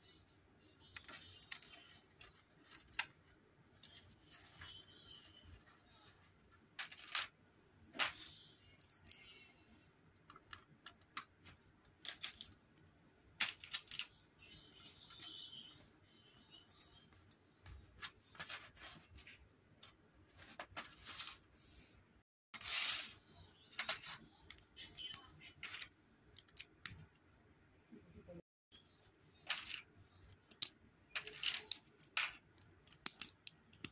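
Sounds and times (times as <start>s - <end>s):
plastic bricks clicking together: 29.5s - 33.9s.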